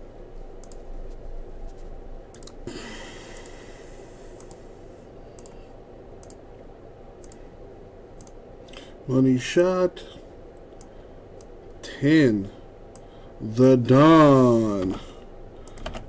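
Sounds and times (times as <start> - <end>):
computer mouse clicks: 0.6 - 0.8, 2.3 - 2.7, 3.3 - 3.6, 4.4 - 4.7, 5.3 - 5.6, 6.2 - 6.4, 7.2 - 7.4, 8.2 - 8.4, 15.6 - 16.0.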